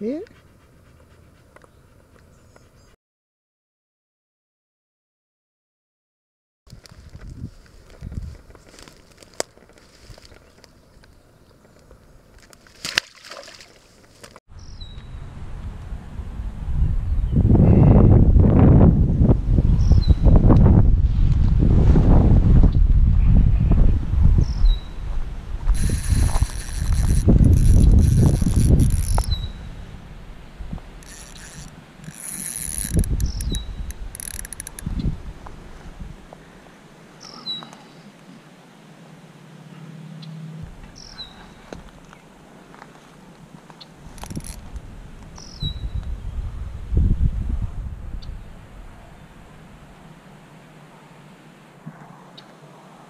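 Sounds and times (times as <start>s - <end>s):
wind rumbling on microphone: 6.7s - 9.1s, 14.5s - 36.3s, 44.0s - 50.1s
handling clicks and rustles: 6.7s - 13.0s, 25.7s - 29.4s, 31.0s - 34.9s, 41.7s - 45.4s
fish splashing into water: 12.6s - 14.0s
low rumble: 14.9s - 19.7s
fishing reel whirring and clicking: 25.7s - 29.4s, 31.0s - 34.9s, 44.1s - 44.6s.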